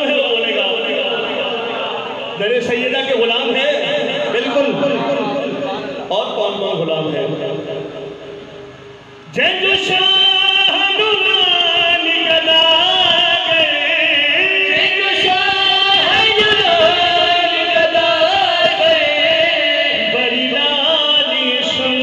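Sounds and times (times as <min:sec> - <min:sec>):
men singing devotional song: 0:09.4 - 0:22.0.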